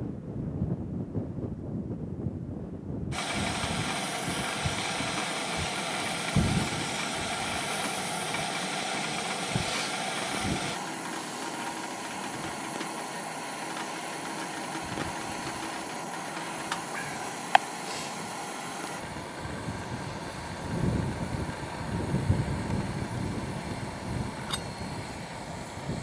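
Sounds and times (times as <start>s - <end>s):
wind thumping on microphone: 0.0s - 8.4s, 19.2s - 25.1s
camp stove burner roaring hiss: 3.1s - 26.0s.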